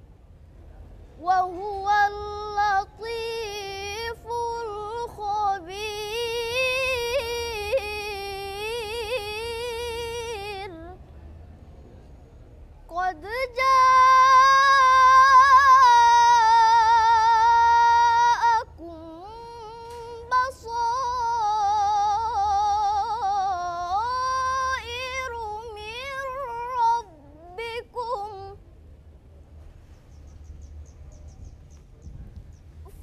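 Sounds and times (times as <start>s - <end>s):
girl chanting melodically: 12.9s - 28.6s.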